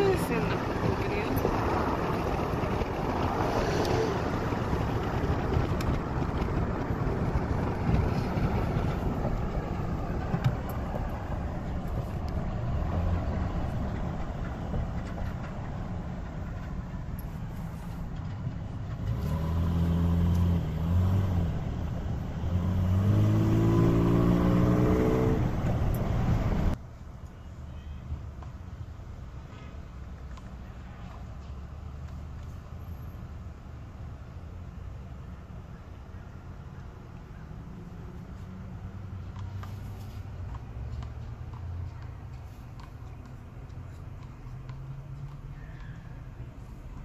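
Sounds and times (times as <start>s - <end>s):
car road rumble: 0.0s - 47.0s
engine revving up: 19.0s - 21.8s, 22.4s - 26.8s.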